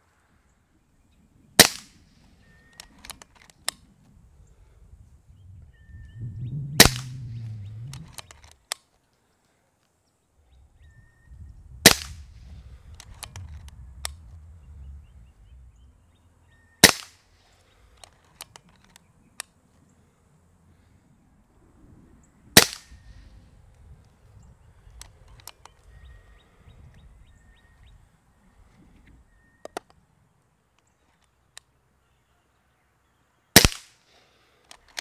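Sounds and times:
air rifle shot crack: 1.6 - 2.1, 6.7 - 8.3, 11.8 - 14.2, 16.8 - 17.2, 22.5 - 23.1, 33.6 - 34.0
rifle action clicks: 2.6 - 3.8, 6.8 - 8.8, 12.9 - 14.2, 34.7 - 35.0.

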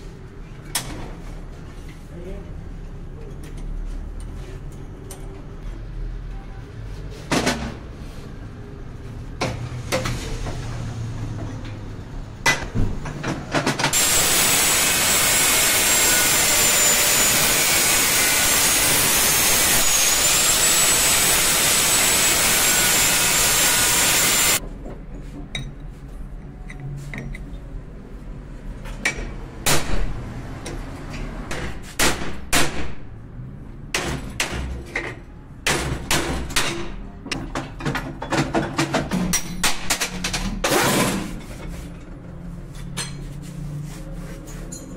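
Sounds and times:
angle grinder cutting metal: 13.9 - 24.6.

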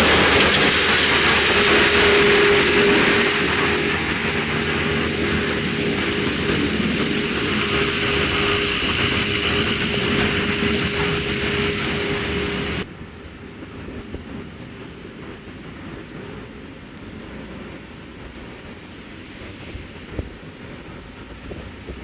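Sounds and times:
diesel engine running with whine: 0.0 - 12.9.

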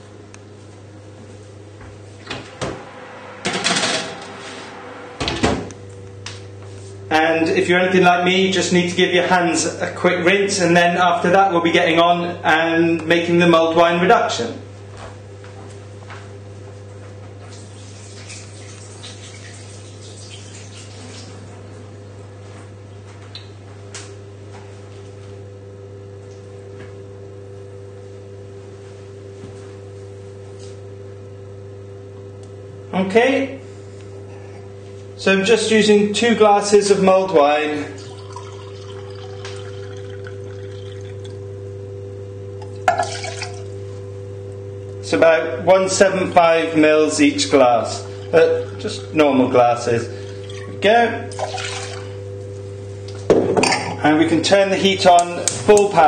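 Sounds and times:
low electrical hum: 0.0 - 56.0
faint higher tone: 2.0 - 6.2
baking tray scraping in: 2.4 - 5.6.

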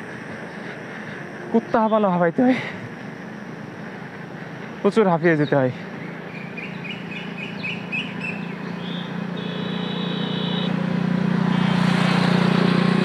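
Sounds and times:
vehicle engine hum: 0.0 - 13.0
wind and road noise: 0.0 - 13.0
bird chirps: 5.3 - 10.7.

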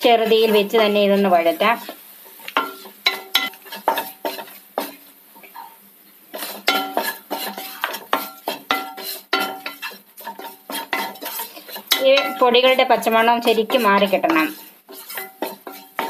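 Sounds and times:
wooden spatula scraping a pan: 0.0 - 16.0
spatula knocking on pan: 6.6 - 16.0.

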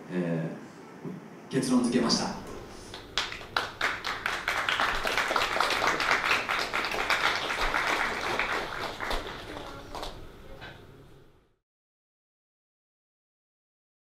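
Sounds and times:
audience applauding: 2.4 - 10.8.

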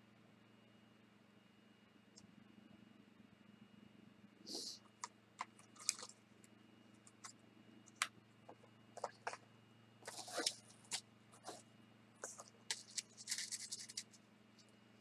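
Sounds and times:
packaging rustling: 10.0 - 11.6, 12.2 - 14.1.

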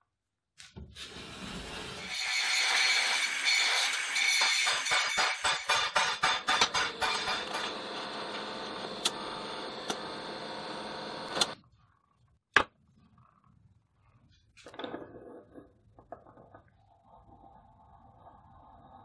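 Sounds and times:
hammer striking steel rod: 4.4 - 7.7.

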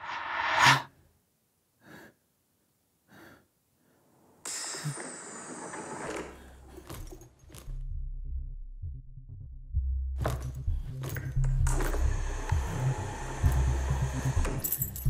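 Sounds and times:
soft breaths: 1.7 - 7.4
hissing door opening: 4.5 - 6.8.

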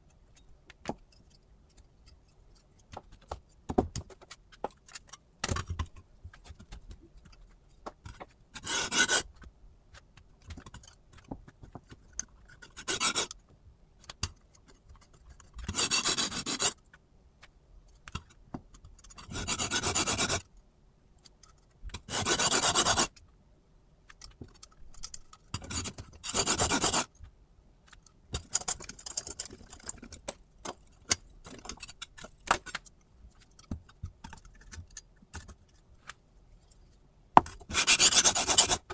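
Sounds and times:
small clicks and knocks: 0.0 - 8.6, 9.3 - 15.8, 16.8 - 19.3, 24.0 - 26.3, 27.1 - 37.7.

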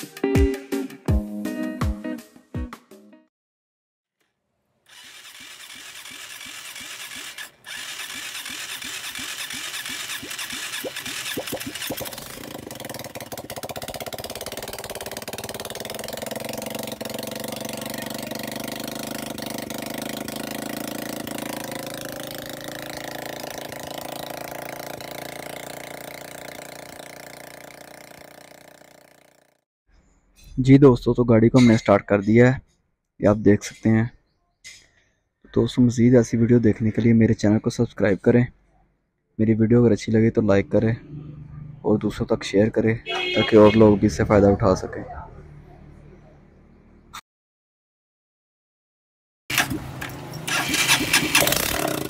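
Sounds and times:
auto rickshaw engine cranking: 4.9 - 29.5, 49.5 - 52.0
auto rickshaw engine running: 4.9 - 29.6, 49.5 - 52.0.

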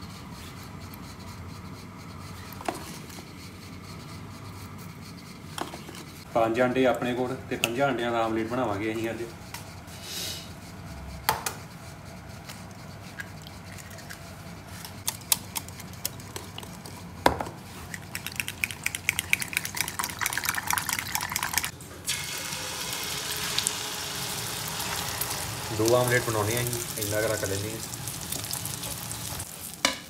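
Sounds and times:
egg sizzling in a hot pan: 21.1 - 30.0.

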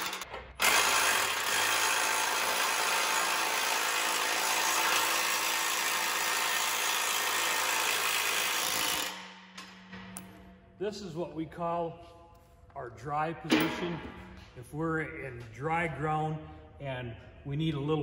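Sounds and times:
cordless impact wrench running: 0.0 - 9.5.

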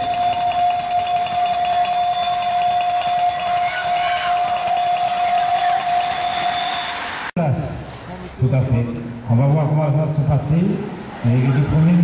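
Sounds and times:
bell ringing rapidly: 0.0 - 7.3.

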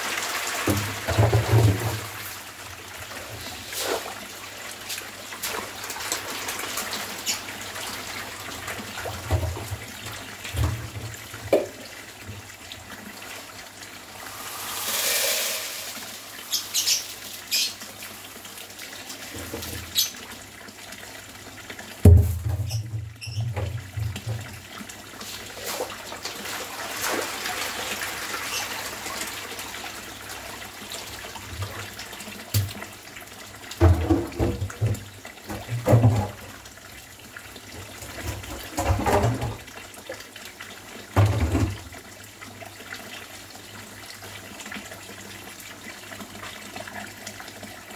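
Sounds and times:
water pouring from pipe into pond: 0.0 - 47.9
sharp water splashes: 14.2 - 17.8, 25.5 - 29.4.

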